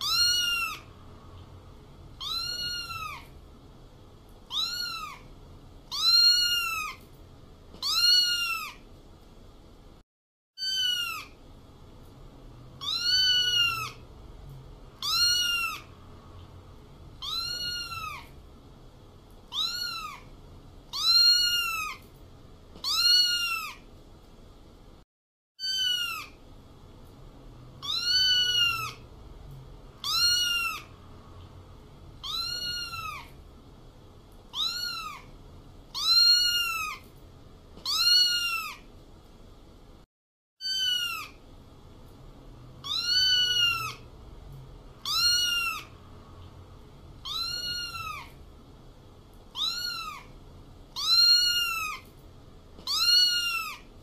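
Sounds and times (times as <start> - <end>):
cat meowing: 0.0 - 0.9, 2.2 - 3.3, 4.5 - 5.3, 5.9 - 7.0, 7.8 - 8.8, 10.6 - 11.4, 12.8 - 14.0, 15.0 - 15.9, 17.2 - 18.4, 19.5 - 20.3, 20.9 - 22.0, 22.8 - 23.9, 25.6 - 26.4, 27.8 - 29.0, 30.0 - 30.9, 32.2 - 33.4, 34.5 - 35.3, 35.9 - 37.1, 37.8 - 38.9, 40.6 - 41.4, 42.8 - 44.0, 45.0 - 46.0, 47.2 - 48.4, 49.5 - 52.1, 52.8 - 53.9.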